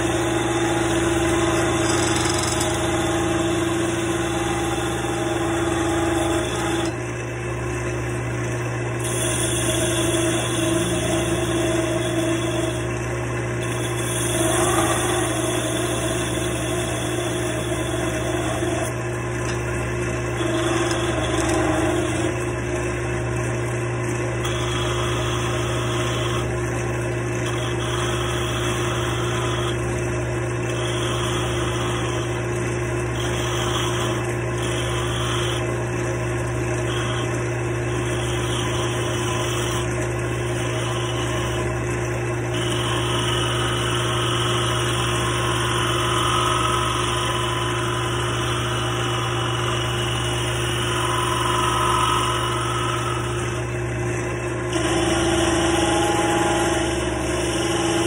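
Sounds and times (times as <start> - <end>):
chisel cutting spinning wood: 0.0 - 58.0
wood lathe motor humming: 0.0 - 58.0.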